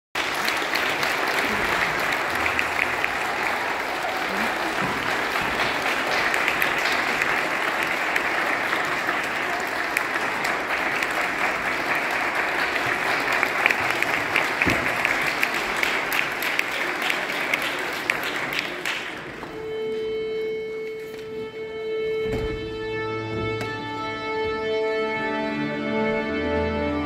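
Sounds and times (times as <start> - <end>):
audience applauding: 0.1 - 19.6.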